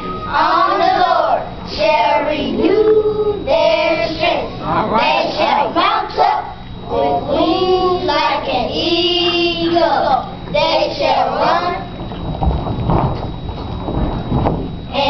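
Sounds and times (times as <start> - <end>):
children reciting in unison: 0.3 - 11.9.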